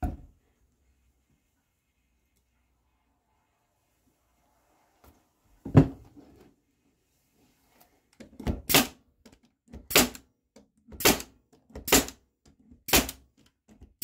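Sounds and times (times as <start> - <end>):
brad nailer firing: 8.6 - 9.0, 9.9 - 10.2, 11.0 - 12.2, 12.9 - 13.2.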